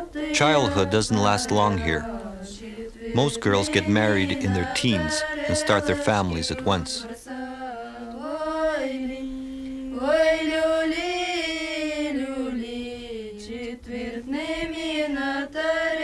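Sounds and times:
voices singing in unison: 0.0 - 16.0.

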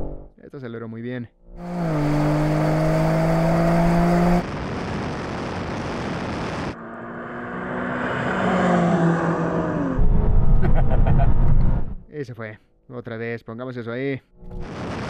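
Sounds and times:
car engine accelerating hard: 1.6 - 4.5
rushing noise: 14.5 - 15.0.

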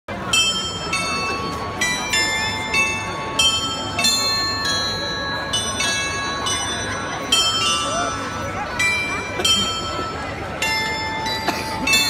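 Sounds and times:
crowd chatter: 0.1 - 12.0
glockenspiel playing slow tune: 0.1 - 12.0.

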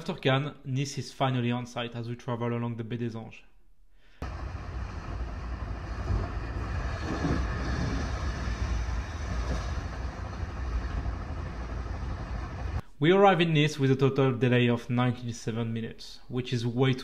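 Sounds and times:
even rushing noise: 4.2 - 12.8
train wheels rumbling on rail: 4.2 - 12.8.

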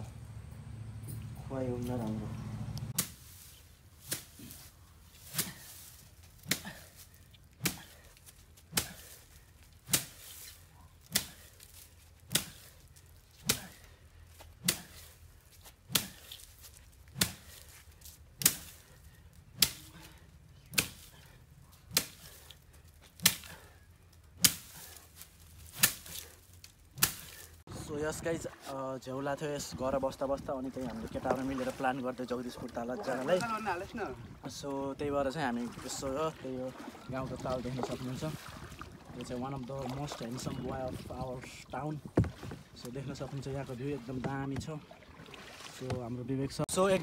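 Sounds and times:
bamboo pole whacking straw: 2.9 - 12.8, 13.4 - 23.7, 24.3 - 27.6.

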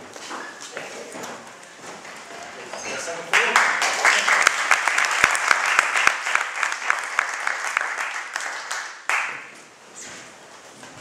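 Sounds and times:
audience applauding: 3.3 - 9.5.

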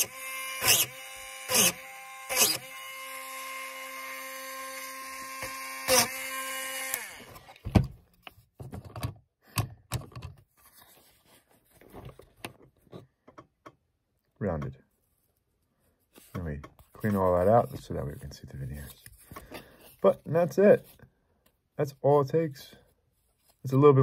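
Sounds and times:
rotary tool whining: 0.0 - 7.6
tool handling clicks and knocks: 7.4 - 10.5, 12.1 - 13.9.

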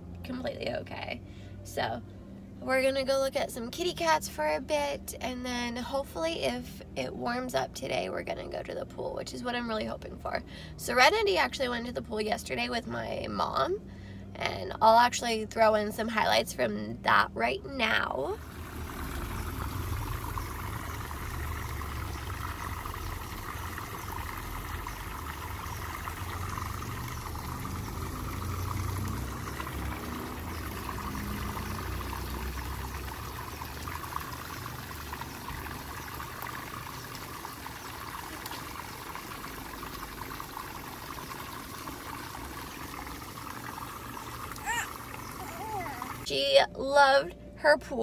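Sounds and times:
water spraying into a pool: 18.2 - 46.3.

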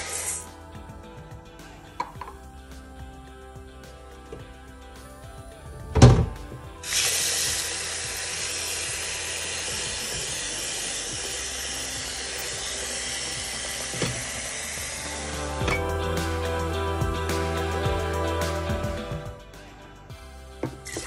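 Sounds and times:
water running from a tap: 6.8 - 15.2.

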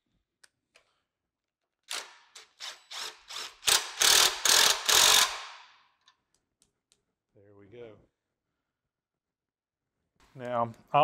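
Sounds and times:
impact wrench hammering: 1.9 - 6.0.

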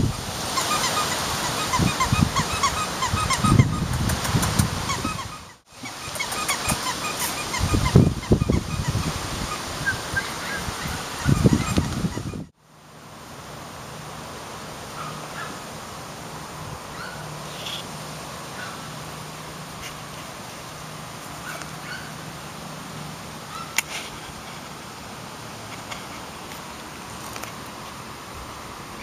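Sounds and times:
outdoor hiss and hum: 0.0 - 29.0
puppies squeaking and yipping: 0.5 - 12.5, 16.9 - 17.9, 21.4 - 22.2.

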